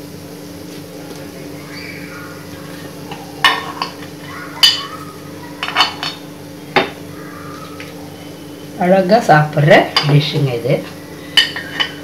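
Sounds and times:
steady low hum: 0:00.0 - 0:12.0
metal spoon clinking on pan: 0:11.4 - 0:12.0.

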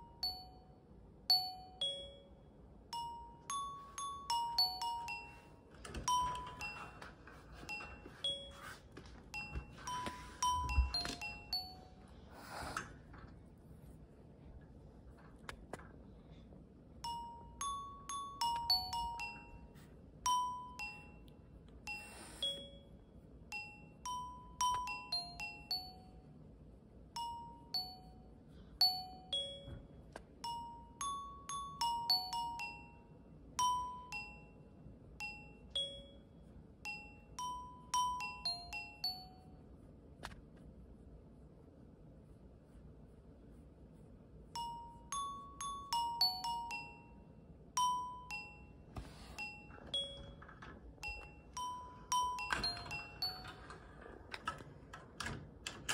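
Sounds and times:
glockenspiel-like bell melody: 0:00.0 - 0:12.7, 0:17.0 - 0:26.5, 0:27.1 - 0:39.8, 0:44.5 - 0:55.9.

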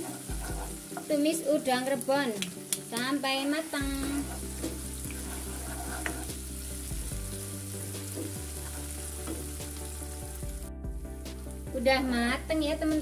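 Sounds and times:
spatula stirring in wok: 0:00.0 - 0:01.1, 0:04.0 - 0:09.9
paste sizzling in hot oil: 0:00.0 - 0:10.7.

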